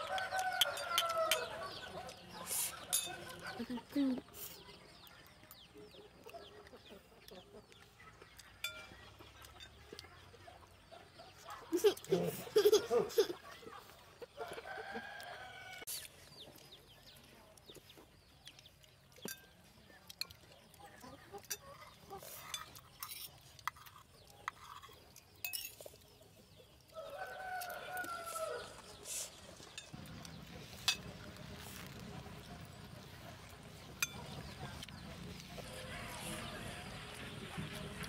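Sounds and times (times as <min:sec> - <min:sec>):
rooster crowing: 0:00.0 - 0:01.6, 0:26.9 - 0:28.8
spoons clinking on plates: 0:02.9 - 0:03.4, 0:08.6 - 0:09.8, 0:25.4 - 0:25.9.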